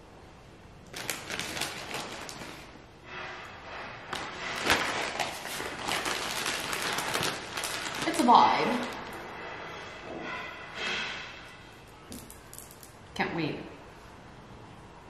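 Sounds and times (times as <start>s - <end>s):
plastic bags crinkling: 0.9s - 2.8s, 4.1s - 9.2s.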